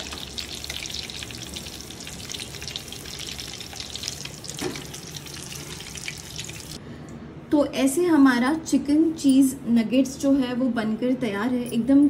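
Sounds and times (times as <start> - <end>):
food sizzling in hot oil: 0.0 - 6.8.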